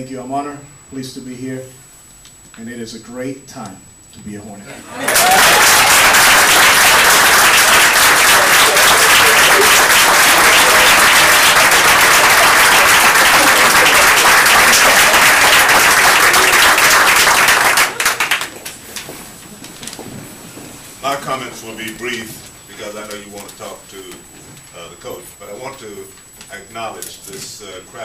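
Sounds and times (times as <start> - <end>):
audience applauding: 4.9 - 18.8.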